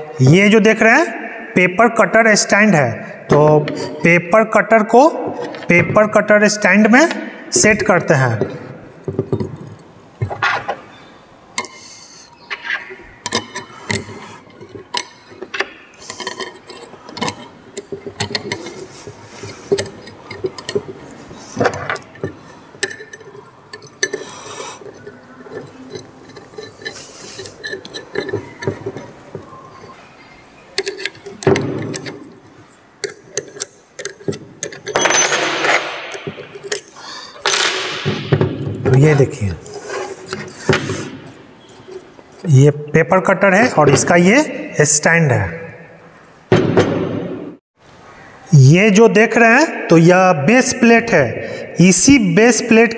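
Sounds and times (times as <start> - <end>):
spanner working a nut and bolt: 12.6 - 30.0, 30.8 - 37.7
metal parts clinking: 13.2 - 30.0, 30.8 - 38.1.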